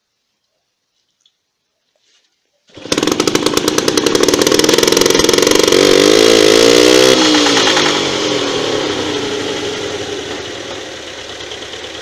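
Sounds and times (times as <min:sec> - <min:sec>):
small two-stroke engine running: 0:02.7 - 0:12.0.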